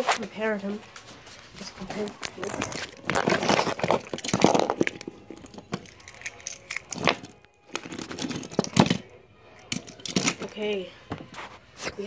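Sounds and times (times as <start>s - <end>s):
plastic toy pieces clicking and rattling: 2.0s - 10.7s.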